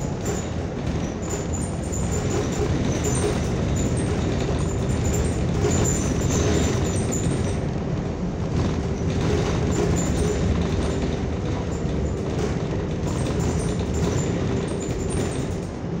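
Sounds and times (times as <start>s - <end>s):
bus engine and road rumble: 0.0s - 16.0s
light cabin rattles: 0.0s - 16.0s.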